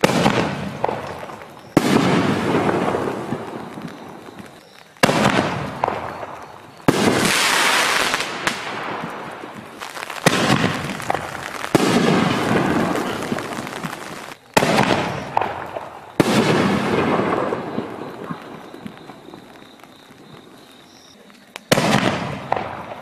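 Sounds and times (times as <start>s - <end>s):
firework shells banging: 5.0s - 18.0s.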